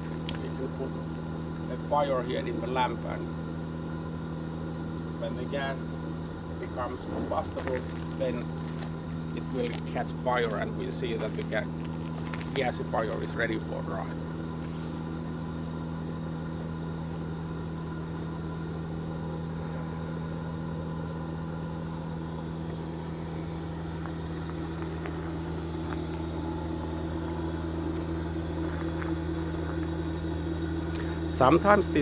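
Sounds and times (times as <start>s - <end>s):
blower humming: 0.0s - 32.0s.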